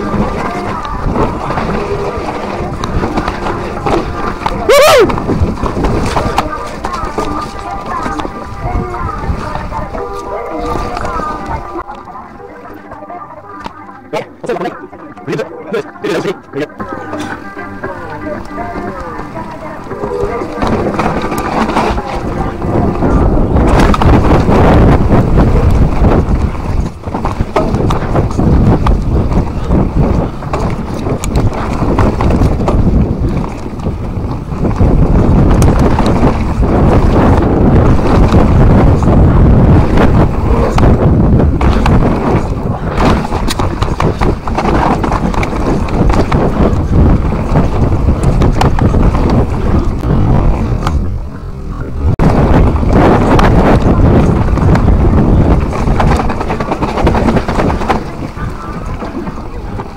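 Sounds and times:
tyres rumbling over dirt: 0.0 - 12.3, 16.8 - 59.9
wind rushing over microphone: 0.0 - 59.9
bike clicks and rattles: 20.0 - 50.1.

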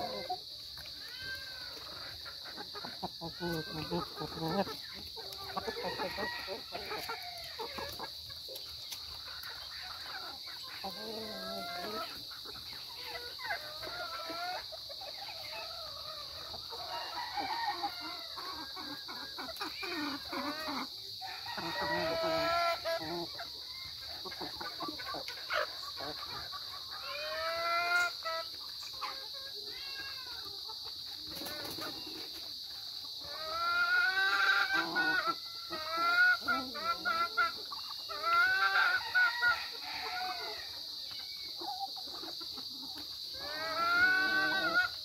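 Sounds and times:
chickens clucking: 0.0 - 45.0.

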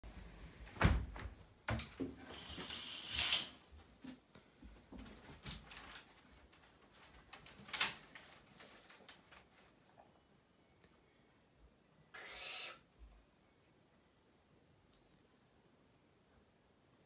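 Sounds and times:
owl hiss: 2.2 - 3.6, 12.1 - 12.9.

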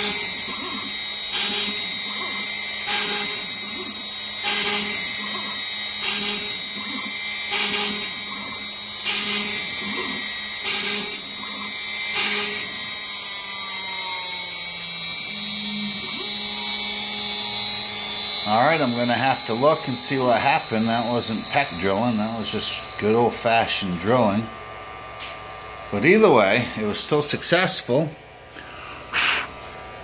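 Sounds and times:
router spindle whining: 0.0 - 23.9
axis motors humming: 0.0 - 25.7.

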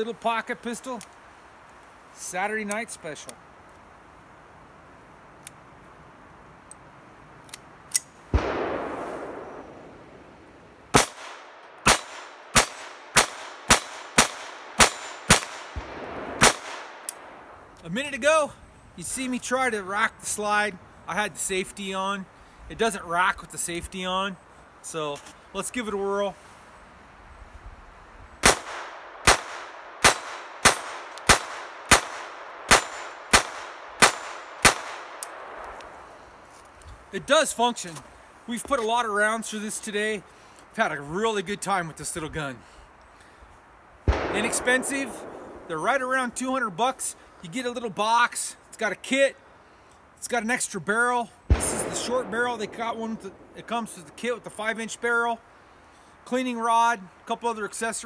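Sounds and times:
pistol handling clicks: 7.4 - 8.5, 11.0 - 17.8, 28.4 - 35.9
sharp crack: 7.5 - 17.9, 28.4 - 36.8, 44.1 - 46.5, 51.5 - 54.8
pistol shots: 8.3 - 10.0, 10.9 - 17.4, 28.4 - 35.8, 44.1 - 45.8, 51.5 - 53.6.

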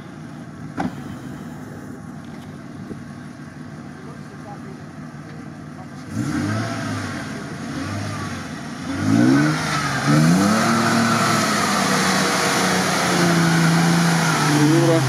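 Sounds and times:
engine revving hard: 6.1 - 15.0.

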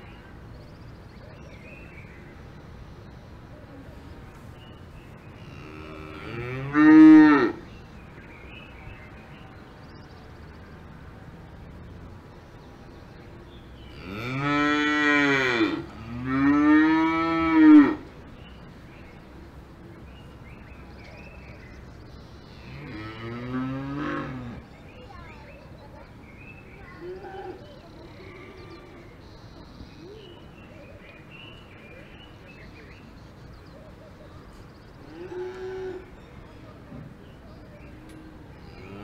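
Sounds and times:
cows mooing: 5.4 - 7.6, 13.9 - 18.0, 22.6 - 24.6.

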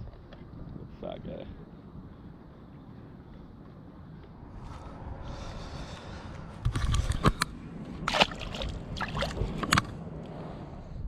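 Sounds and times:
water splashing: 8.0 - 9.6.

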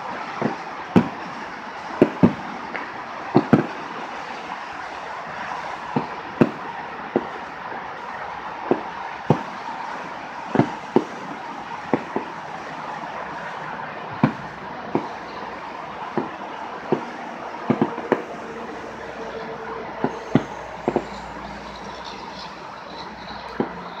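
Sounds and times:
fireworks bangs: 0.0 - 24.0
steady hiss: 14.2 - 24.0.

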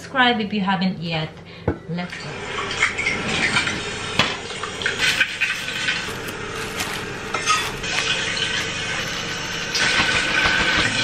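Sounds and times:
plastic bag crinkling: 4.8 - 9.3
ceramic dish clinking: 7.3 - 8.1.

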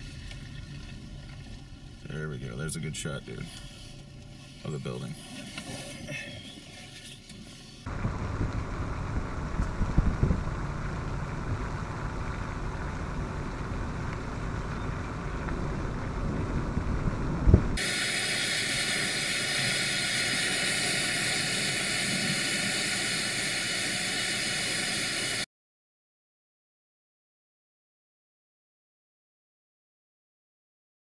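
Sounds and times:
vehicle driving rumble: 7.8 - 17.8
wind buffeting: 7.9 - 17.9.

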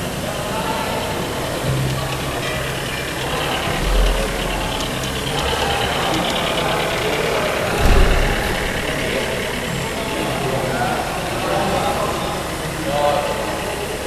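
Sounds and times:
model locomotive running on track: 0.0 - 14.0
low thumps: 2.0 - 10.8
hall din: 2.0 - 11.5.

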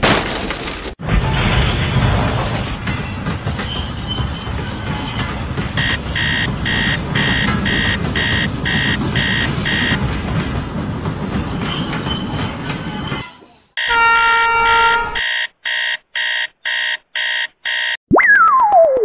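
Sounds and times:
model train wheels rumbling: 1.0 - 13.8.

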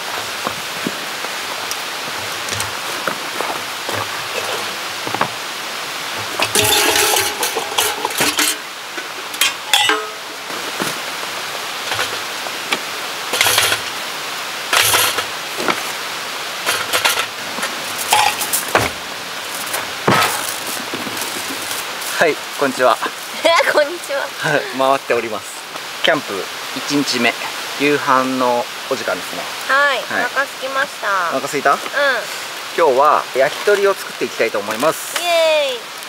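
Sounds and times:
steady outdoor hiss: 0.0 - 36.0
metal cooking gear clattering: 6.2 - 10.2, 11.9 - 12.2, 13.3 - 13.9, 14.7 - 15.3, 16.6 - 18.8.

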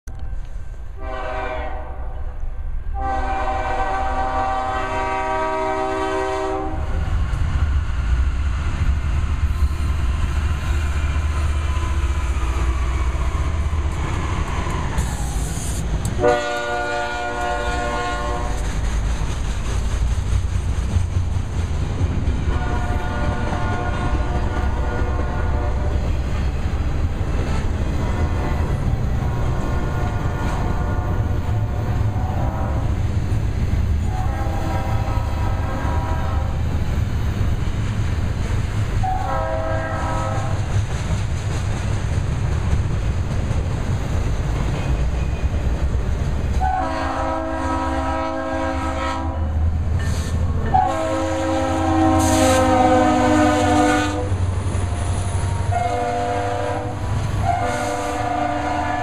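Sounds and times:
diesel locomotives rumbling: 0.0 - 59.0
train air horn blasts: 1.0 - 7.1, 15.1 - 18.8, 22.4 - 26.1, 28.0 - 28.6, 29.3 - 33.0, 34.0 - 36.6, 39.0 - 40.6, 46.6 - 49.6, 50.7 - 54.4, 55.5 - 59.0
train wheel clatter: 7.0 - 47.8, 49.8 - 51.1.

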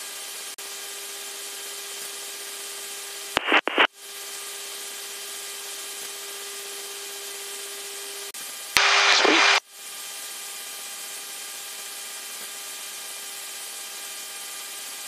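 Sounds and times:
loud static bursts: 3.4 - 3.9, 8.8 - 9.6
cockpit noise hiss: 8.8 - 9.6
electrical hum: 8.8 - 9.6.

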